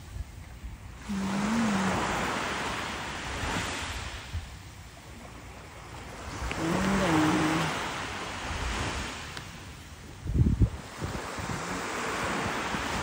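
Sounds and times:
wave breaking on beach: 0:01.0 - 0:04.5, 0:05.8 - 0:09.8, 0:10.7 - 0:13.0.

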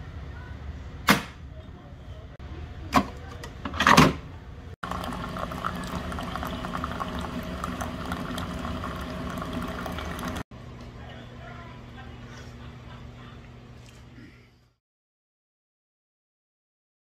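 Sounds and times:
coffee maker pump hum: 0:04.8 - 0:10.5
coffee pouring into mug: 0:04.8 - 0:10.5.

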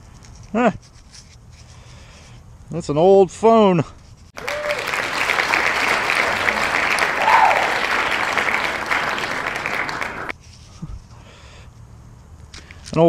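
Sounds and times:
crowd applause: 0:04.4 - 0:10.3.

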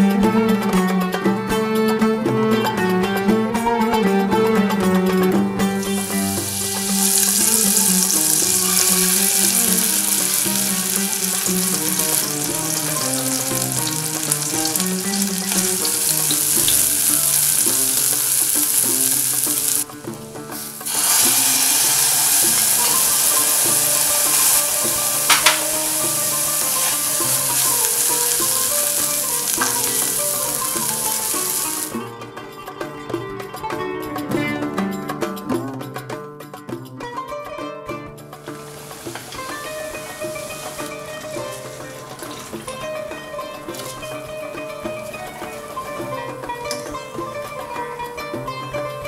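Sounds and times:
berries and sugar sizzling in fat: 0:05.8 - 0:19.9, 0:20.5 - 0:32.0, 0:38.6 - 0:42.7, 0:43.7 - 0:44.1.

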